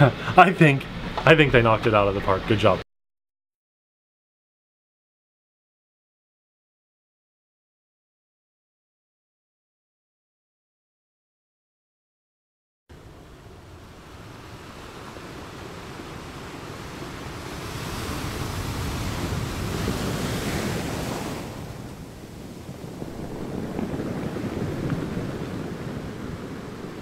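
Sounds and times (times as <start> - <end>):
ocean waves washing: 0.0 - 2.8, 12.9 - 27.0.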